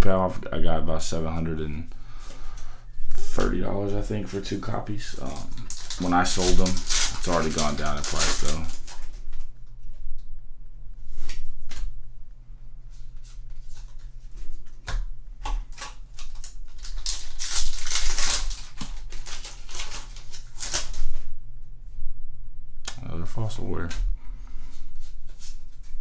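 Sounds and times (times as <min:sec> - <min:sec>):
low steady hum: 0:00.0 - 0:26.0
foil wrapper crinkling and tearing: 0:03.1 - 0:09.5, 0:14.8 - 0:21.3.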